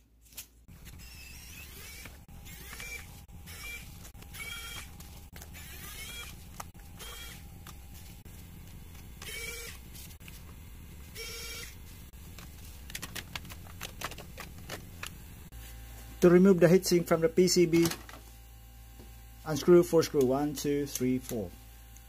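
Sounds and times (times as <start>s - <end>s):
electric screwdriver whirring: 0.8s - 7.8s, 9.2s - 9.9s, 11.2s - 11.8s.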